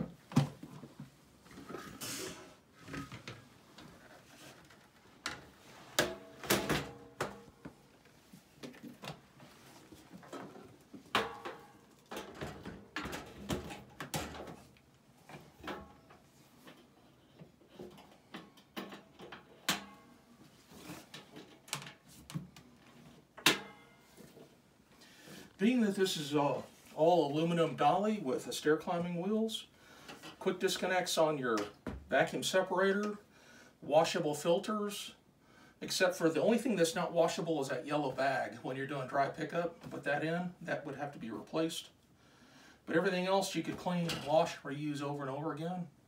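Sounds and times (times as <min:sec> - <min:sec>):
vacuum parts knocking and clunking: 0:10.2 - 0:16.1.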